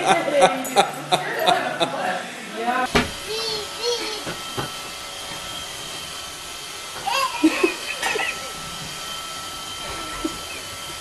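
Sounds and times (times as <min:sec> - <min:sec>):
robot vacuum whirring: 0:02.9 - 0:11.0.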